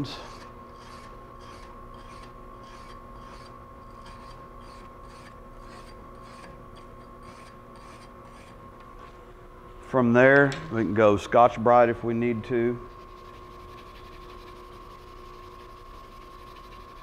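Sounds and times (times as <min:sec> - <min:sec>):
steady hum: 0:00.0 - 0:17.0
wire brush scrubbing metal plate: 0:12.9 - 0:17.0.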